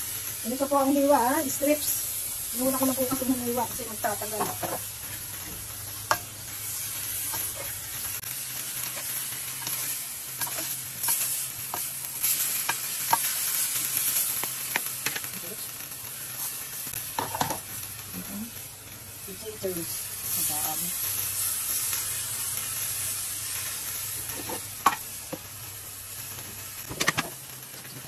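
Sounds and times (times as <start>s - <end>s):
vegetables sizzling in oil: 0.0s - 28.0s
spatula scraping a wok: 2.7s - 8.0s, 8.7s - 15.2s, 24.1s - 25.0s.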